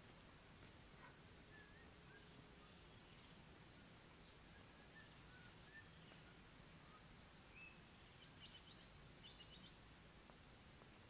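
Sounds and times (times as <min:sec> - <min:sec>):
bird chirps: 0:01.0 - 0:09.8
songbird trills: 0:01.0 - 0:10.0.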